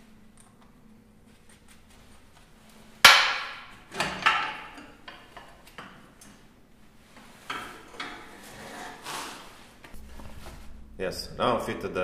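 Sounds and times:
metal clanks and knocks: 0:03.1 - 0:06.0, 0:07.4 - 0:08.9.

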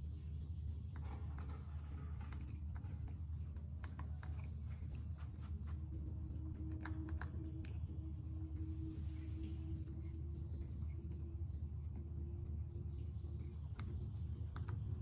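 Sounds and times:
monkey chewing with mouth clicks: 0:00.0 - 0:15.0
steady low hum: 0:00.0 - 0:15.0.

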